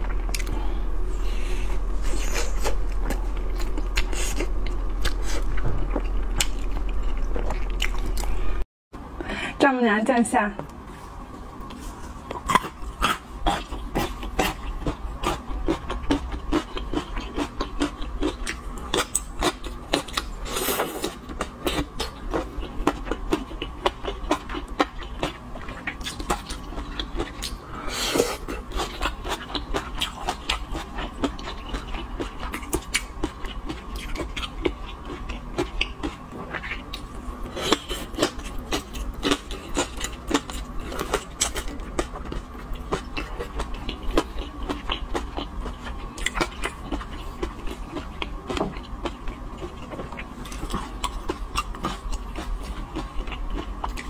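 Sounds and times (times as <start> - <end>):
wet chewing: 11.6 - 27.6, 28.2 - 54.0.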